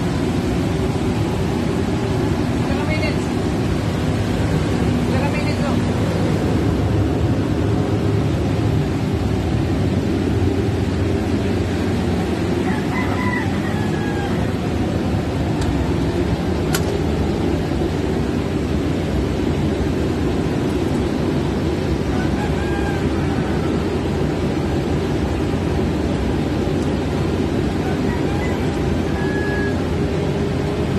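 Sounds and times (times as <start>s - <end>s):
generator engine droning: 0.0s - 30.9s
rooster crowing faintly: 12.6s - 14.8s, 22.1s - 24.0s, 27.7s - 30.0s.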